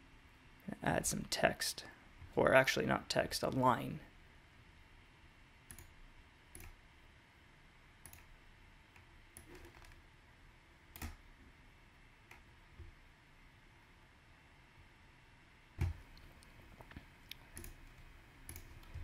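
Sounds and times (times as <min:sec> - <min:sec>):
computer mouse clicks: 0:05.7 - 0:06.8, 0:08.0 - 0:08.3, 0:10.9 - 0:11.2, 0:15.8 - 0:19.0.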